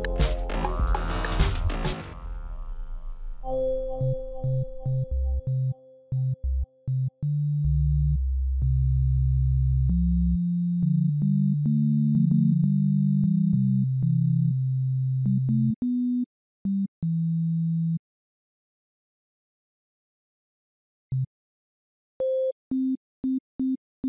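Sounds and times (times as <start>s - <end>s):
synthesizer playing low notes: 0.0s - 14.3s.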